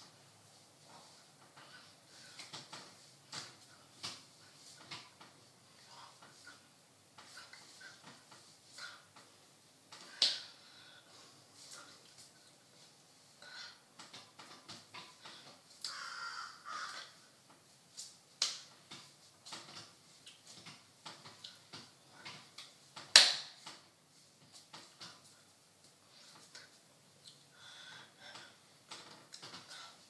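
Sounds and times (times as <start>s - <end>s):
sharp hand smack: 23.2s - 23.6s.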